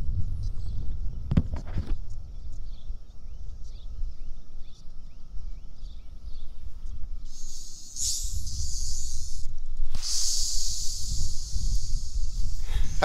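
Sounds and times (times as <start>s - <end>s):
wind rumbling on microphone: 0.0s - 13.0s
bird chirps: 2.0s - 13.0s
cicada chorus drone: 2.1s - 13.0s
loud high hiss: 7.3s - 13.0s.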